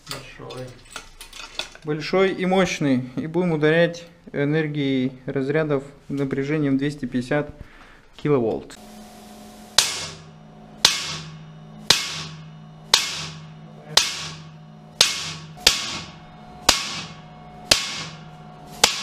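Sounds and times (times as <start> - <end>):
steady low hum: 0.0 - 19.0
sharp spark discharge cracks: 9.3 - 13.4, 16.7 - 19.0.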